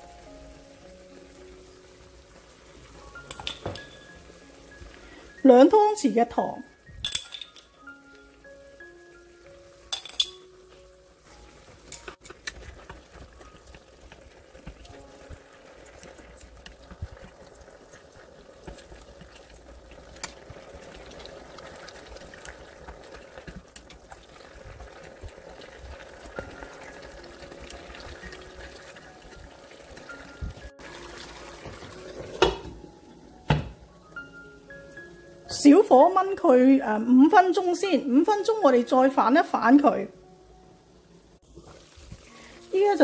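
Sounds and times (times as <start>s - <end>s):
sauce bubbling in frying pan: 0.0s - 7.0s, 7.6s - 43.0s
soft background music: 0.0s - 18.3s, 24.6s - 43.0s
chopsticks clinking against pan: 7.1s - 7.8s, 9.9s - 10.5s.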